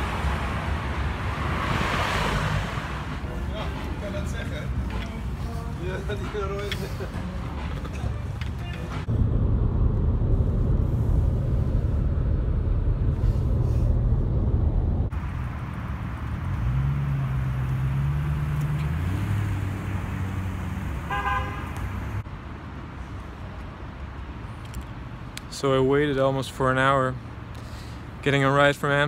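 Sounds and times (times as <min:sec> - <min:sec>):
road and engine rumble in cabin: 0:02.5 - 0:21.1
car engine running outside: 0:08.6 - 0:22.2.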